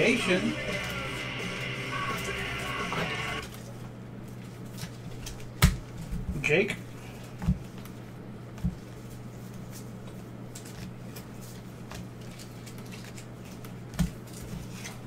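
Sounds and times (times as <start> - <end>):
steady low hum: 0.0 - 15.0
cards rustling in hands: 0.7 - 5.6, 8.8 - 15.0.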